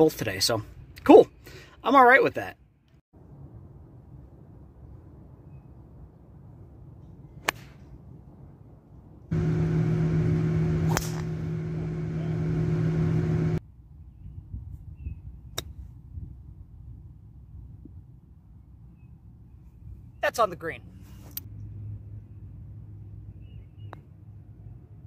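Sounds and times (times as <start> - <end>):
loud low hum: 9.3 - 13.6
golf club striking ball: 9.4 - 13.6.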